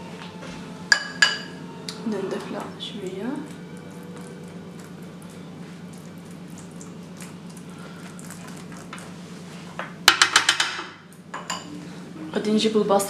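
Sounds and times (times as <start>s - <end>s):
low steady hum: 0.0s - 13.0s
spoon clinking against dishes: 0.9s - 1.6s, 10.1s - 11.7s.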